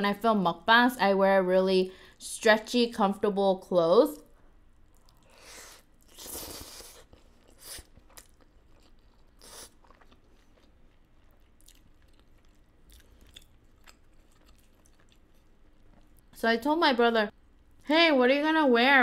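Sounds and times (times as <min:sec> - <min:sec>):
chewing with wet mouth sounds: 0:04.8 - 0:16.3.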